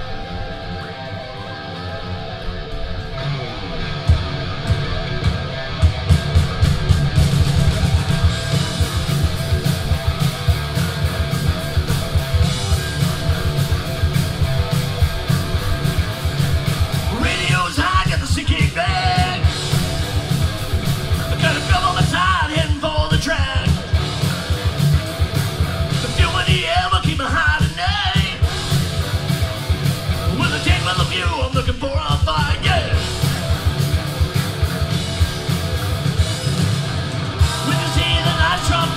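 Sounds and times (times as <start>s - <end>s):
bass guitar: 0.0s - 38.9s
drum kit: 0.0s - 38.9s
electric guitars: 0.0s - 38.9s
person singing: 17.1s - 19.5s, 21.3s - 23.8s, 26.0s - 28.5s, 37.4s - 38.9s.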